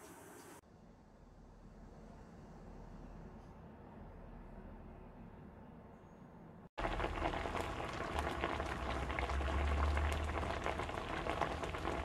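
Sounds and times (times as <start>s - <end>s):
hot oil sizzling and popping: 6.8s - 12.0s.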